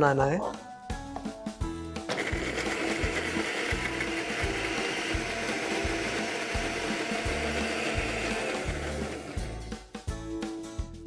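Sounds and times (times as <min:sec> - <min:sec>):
mixer grinder running: 0:02.1 - 0:09.7.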